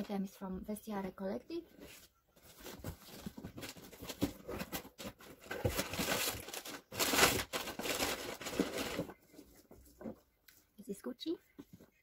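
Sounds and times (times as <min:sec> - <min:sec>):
packaging rustling and crinkling: 0:02.4 - 0:10.2.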